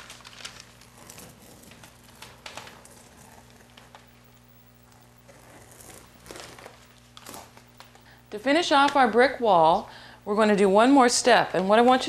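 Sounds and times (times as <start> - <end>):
tape peeling off wall: 0.0 - 8.2
steady low hum: 0.0 - 12.0.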